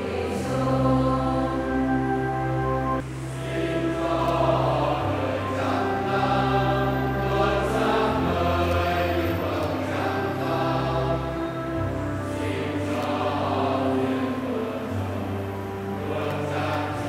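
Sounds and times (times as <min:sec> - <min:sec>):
choir singing a hymn: 0:00.0 - 0:17.0
held accompaniment chords: 0:00.0 - 0:17.0.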